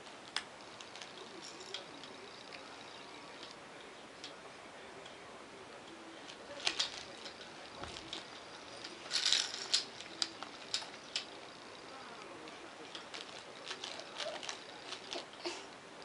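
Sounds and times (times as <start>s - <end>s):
plastic toy clicks and rattles: 6.6s - 11.4s, 12.9s - 15.3s.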